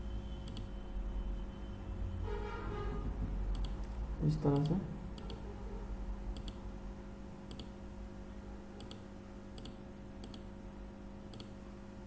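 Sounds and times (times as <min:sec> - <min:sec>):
faint electrical hum: 0:00.0 - 0:12.0
computer mouse clicking: 0:00.5 - 0:00.7, 0:03.5 - 0:03.9, 0:04.5 - 0:05.4, 0:06.3 - 0:06.6, 0:07.5 - 0:07.8, 0:08.8 - 0:10.5, 0:11.3 - 0:11.5.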